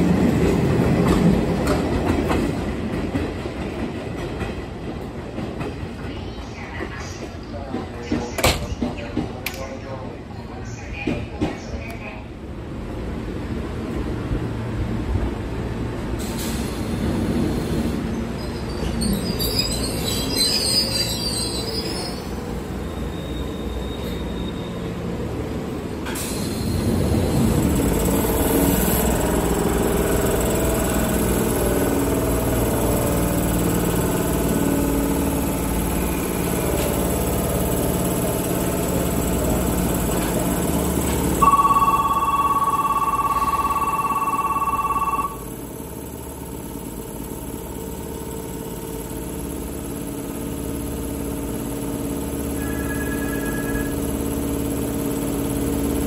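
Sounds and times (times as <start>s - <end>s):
electric train rumbling: 0.0s - 56.0s
loud steady ringing tone: 41.2s - 47.4s, 52.4s - 54.4s
faint higher tone: 41.4s - 45.4s.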